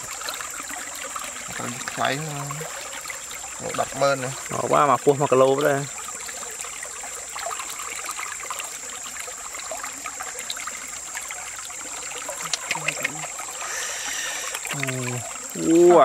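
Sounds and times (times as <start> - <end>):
running water trickling: 0.0 - 16.0
small wet clicks: 12.0 - 13.4, 14.0 - 15.3.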